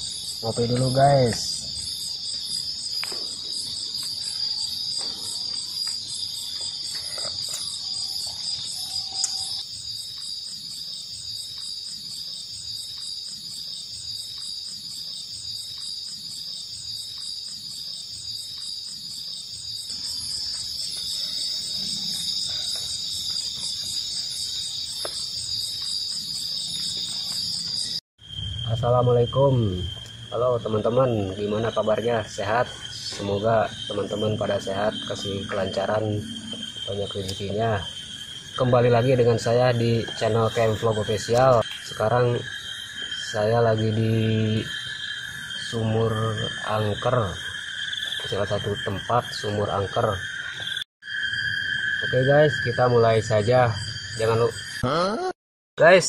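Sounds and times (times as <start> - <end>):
crickets and insects trilling: 0.0 - 56.0
pulsing insect chirp: 0.0 - 56.0.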